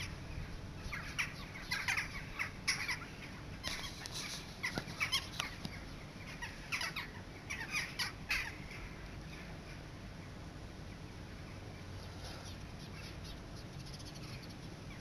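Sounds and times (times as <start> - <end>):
crows cawing: 1.0 - 4.0, 6.3 - 9.0.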